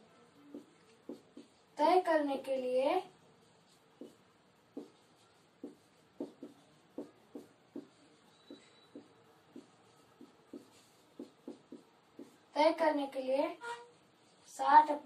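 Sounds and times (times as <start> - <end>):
marker squeaking on whiteboard: 0.4 - 1.7, 3.7 - 12.5, 13.6 - 14.1.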